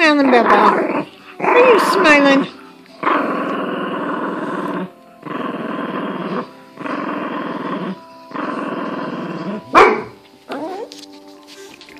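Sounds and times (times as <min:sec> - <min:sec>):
small dog growling: 0:03.0 - 0:09.7.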